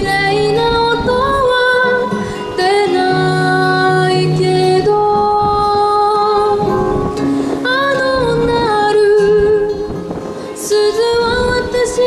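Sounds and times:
girl singing into microphone: 0.0s - 12.0s.

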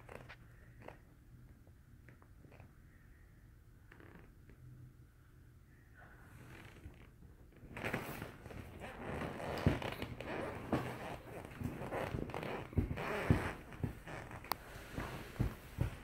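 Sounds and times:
leather couch creaking: 0.0s - 1.1s, 3.9s - 4.5s, 6.5s - 16.0s.

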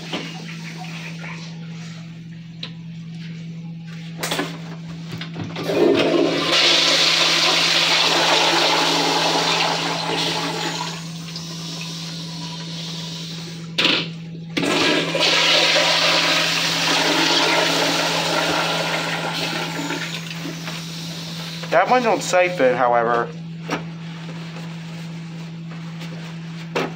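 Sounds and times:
toilet flushing: 0.0s - 2.2s, 5.4s - 22.8s.

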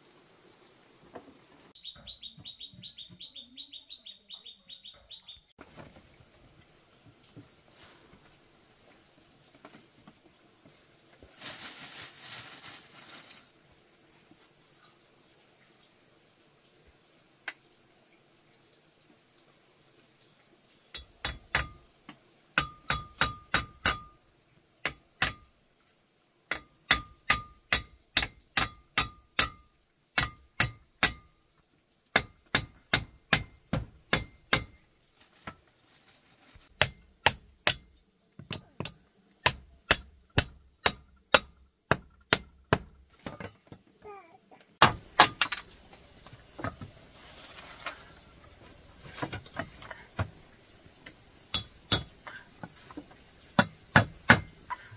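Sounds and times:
soft rustling: 11.2s - 13.6s, 35.0s - 36.7s, 47.0s - 49.4s.

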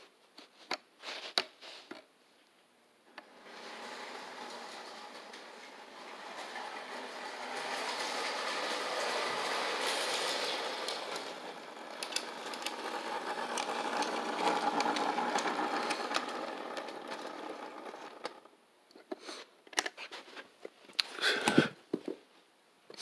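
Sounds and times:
toy train motor whir: 3.2s - 18.5s.

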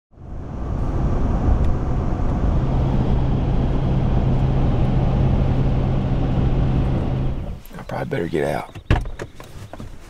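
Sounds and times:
low steady drone: 0.1s - 7.6s
vehicle road and engine noise: 0.1s - 10.0s.

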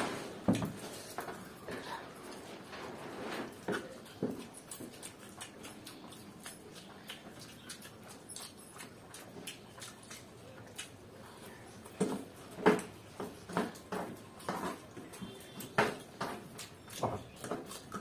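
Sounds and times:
people slurping and chewing noodles: 0.9s - 18.0s.

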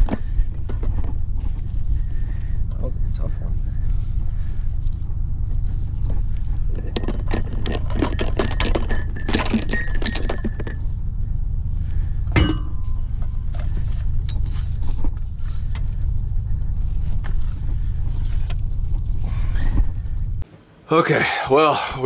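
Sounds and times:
low steady rumble: 0.0s - 22.0s
metal fittings clinking: 6.7s - 10.8s
sharp ringing knock: 12.3s - 13.0s.

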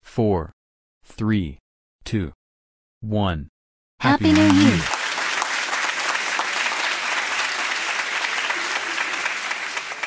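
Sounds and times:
crowd applauding: 4.2s - 10.0s.

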